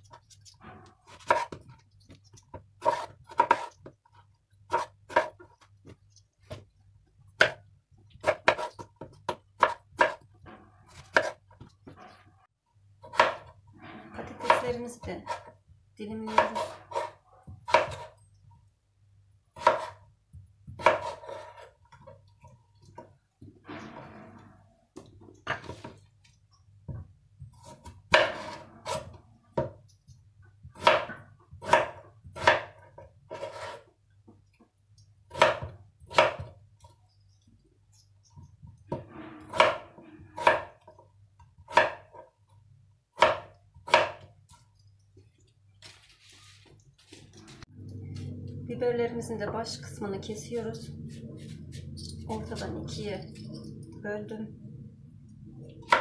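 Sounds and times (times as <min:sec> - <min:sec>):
soft knife scrape: 0:33.3 - 0:33.9, 0:45.8 - 0:48.4, 0:51.0 - 0:53.8.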